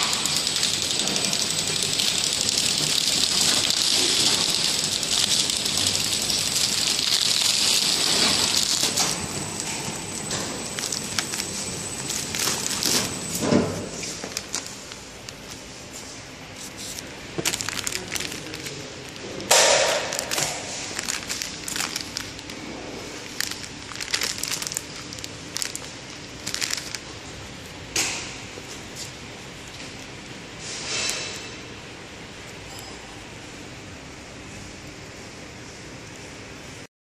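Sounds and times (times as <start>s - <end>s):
plastic film crackling and crinkling: 0.0s - 15.7s, 16.6s - 27.4s
faint machine hum: 0.0s - 36.9s.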